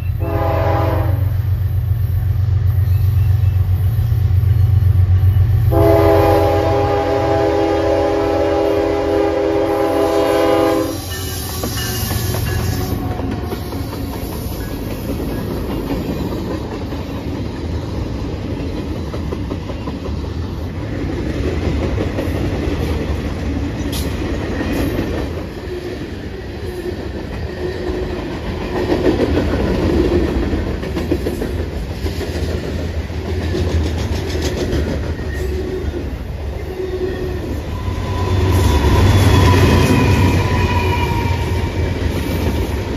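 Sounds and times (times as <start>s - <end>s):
train cars rumbling past: 0.0s - 42.9s
locomotive horn blast: 0.2s - 1.4s, 5.6s - 13.7s
wheels clacking on rails: 10.0s - 42.9s.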